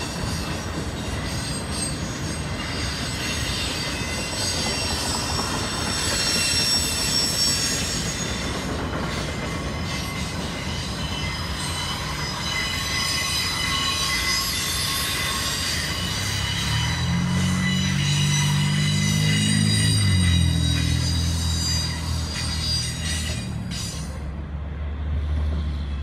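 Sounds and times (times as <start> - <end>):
freight train rumbling past: 0.0 - 26.0
train wheels squealing: 0.0 - 26.0.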